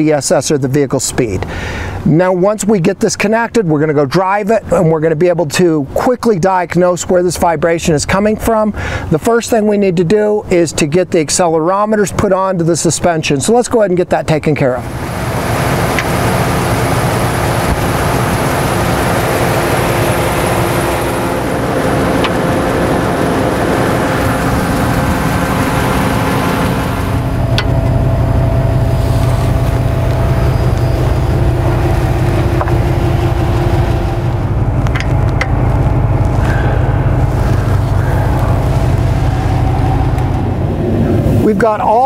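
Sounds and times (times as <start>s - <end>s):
engine humming: 14.6s - 42.0s
deep heavy rumble: 14.7s - 42.0s.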